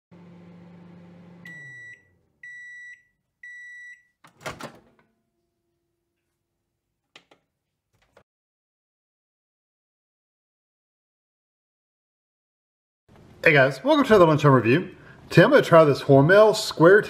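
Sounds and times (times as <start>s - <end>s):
microwave oven humming: 0.1s - 2.8s
microwave timer beeps: 1.1s - 4.2s
microwave door opening: 4.2s - 5.1s.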